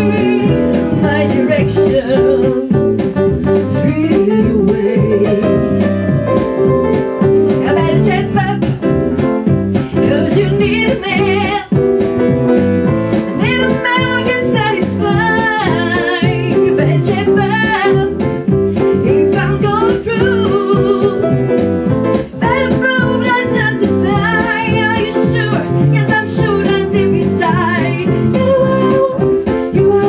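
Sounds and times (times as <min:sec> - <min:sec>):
woman singing into a microphone: 0:00.0 - 0:03.0, 0:03.6 - 0:06.1, 0:07.6 - 0:08.9, 0:09.9 - 0:11.9, 0:13.4 - 0:21.4, 0:22.4 - 0:30.0
electric bass guitar: 0:00.0 - 0:30.0
upright piano: 0:00.0 - 0:30.0.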